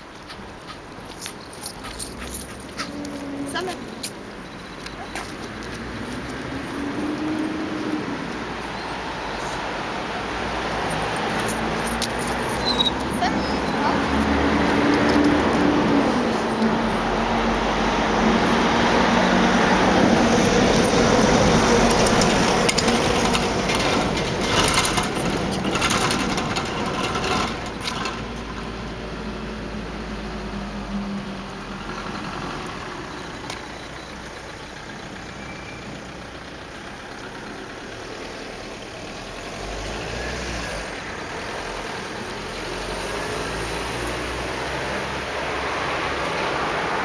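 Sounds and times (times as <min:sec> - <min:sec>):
vehicle engine rumbling: 0:00.0 - 0:47.0.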